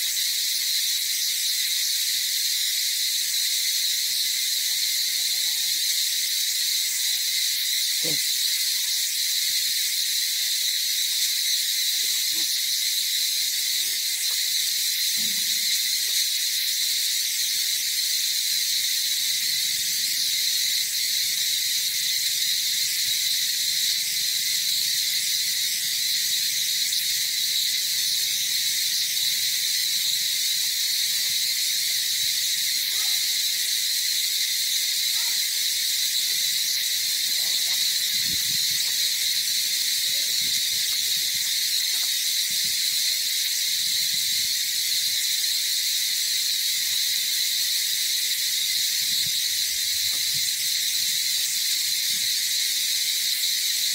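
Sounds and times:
insect chorus buzzing: 0.0 - 53.9.

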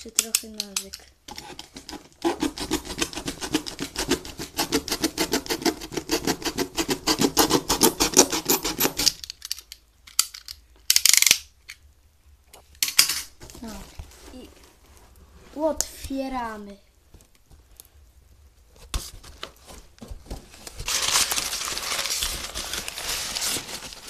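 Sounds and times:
knife sawing through cardboard: 1.3 - 9.1.

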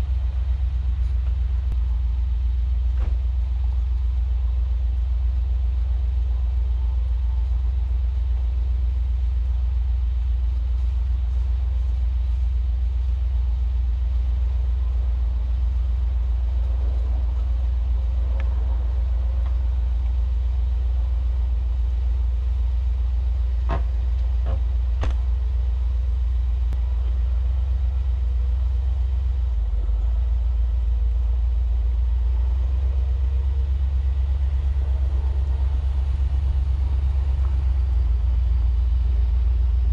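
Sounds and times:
truck driving rumble: 0.0 - 39.9.

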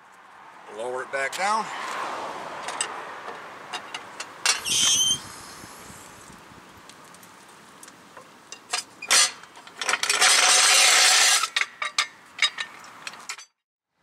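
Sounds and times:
floor jack grinding rattle: 9.1 - 11.7.

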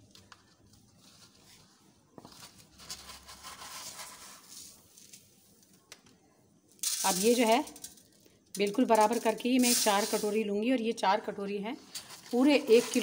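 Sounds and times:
rice grains rustling: 6.8 - 7.9, 8.6 - 10.5, 11.9 - 13.0.

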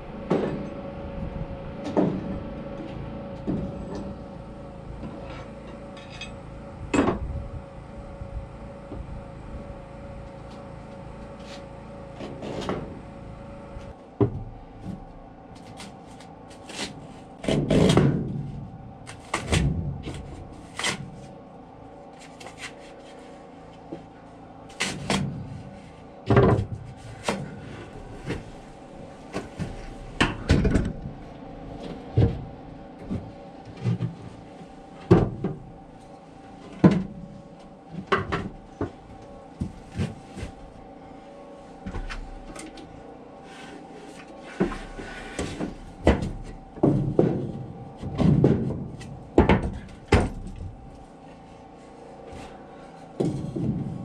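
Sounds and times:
faint steady hum: 0.0 - 54.0
wood and metal knocks and scrapes: 26.2 - 28.6, 44.4 - 50.9, 53.2 - 54.0.

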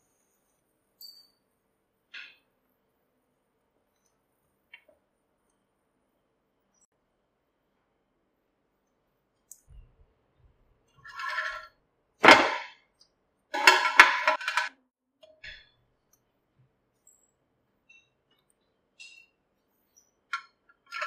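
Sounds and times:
metal spatula scraping grill pan: 11.0 - 11.7.

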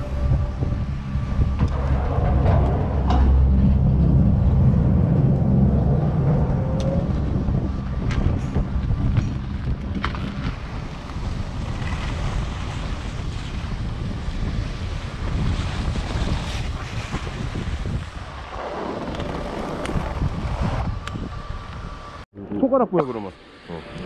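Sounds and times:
wind noise on microphone: 0.0 - 22.2
skis scraping over packed snow: 7.9 - 20.9.

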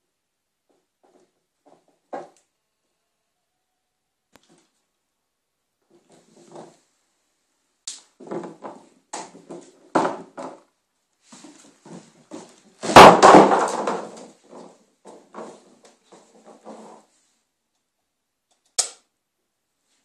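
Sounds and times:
loud thump: 12.8 - 14.2.

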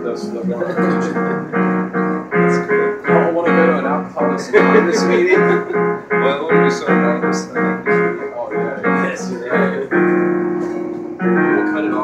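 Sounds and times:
acoustic guitar noodling: 0.0 - 7.9
electric piano playing a mellow song: 0.0 - 12.0.

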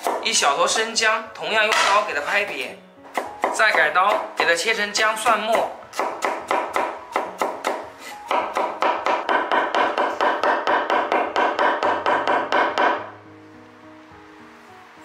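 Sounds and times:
cleaver chopping on wooden board: 1.7 - 2.1, 5.5 - 13.0.

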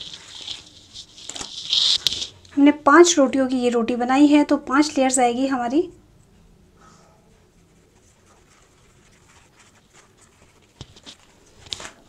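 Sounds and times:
flatbread layers rustling: 0.0 - 2.6, 7.4 - 12.0.

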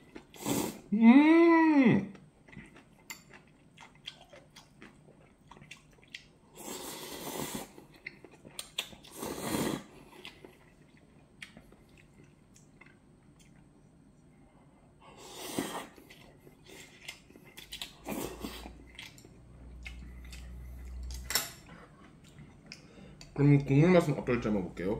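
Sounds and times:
person slurping noodles: 0.3 - 0.9, 6.5 - 7.8, 9.1 - 10.0, 15.1 - 16.1
quiet chewing: 2.1 - 6.7, 7.5 - 14.3, 15.5 - 23.7.

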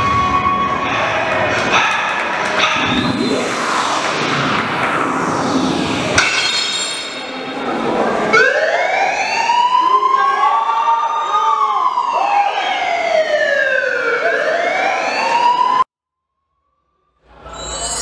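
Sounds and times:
siren-like sweeping tones: 0.0 - 10.4.

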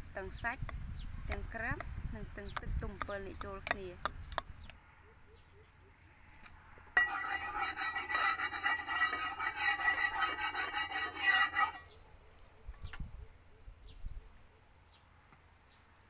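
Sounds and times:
metal spatula scraping a pan: 7.0 - 11.9.

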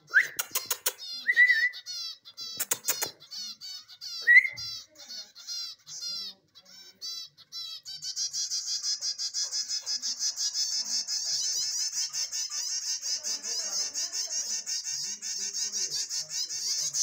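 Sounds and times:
chicks peeping: 0.0 - 17.0
sharp clicks: 0.2 - 1.0, 2.6 - 3.2.

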